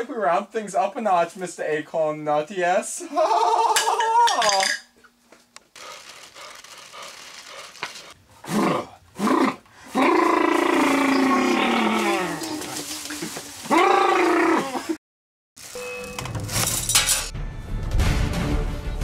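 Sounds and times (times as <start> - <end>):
person screaming: 3.1 - 4.7, 8.5 - 12.7, 13.7 - 15.0.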